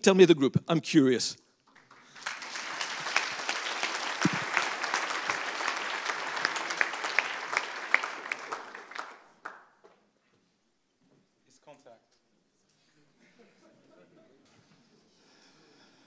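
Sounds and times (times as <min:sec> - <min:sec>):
audience applause: 0:01.7 - 0:09.6.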